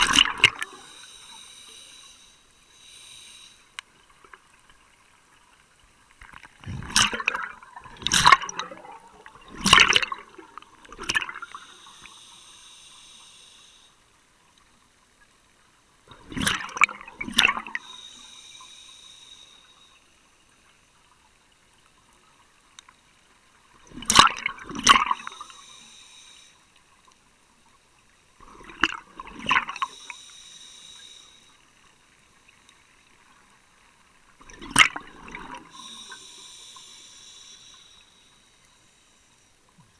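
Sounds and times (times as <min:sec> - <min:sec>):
exhaled bubbles gurgling: 0:00.0 - 0:01.8, 0:06.3 - 0:12.1, 0:16.1 - 0:18.0, 0:23.8 - 0:25.7, 0:28.4 - 0:30.2, 0:34.4 - 0:36.3
regulator hiss: 0:00.7 - 0:03.8, 0:11.5 - 0:14.0, 0:17.8 - 0:20.2, 0:25.1 - 0:26.7, 0:29.8 - 0:31.6, 0:35.7 - 0:39.6.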